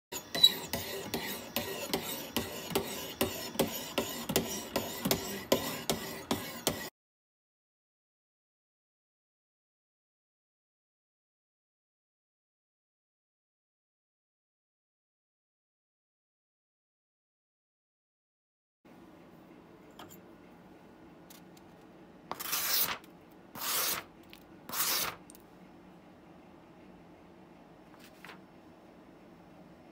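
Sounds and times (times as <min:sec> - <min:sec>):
sharpener scraping steel blade: 0:00.2 - 0:06.9, 0:22.3 - 0:23.0, 0:23.6 - 0:24.1, 0:24.7 - 0:25.2
paper slicing on blade: 0:22.3 - 0:23.0, 0:23.6 - 0:24.1, 0:24.7 - 0:25.2.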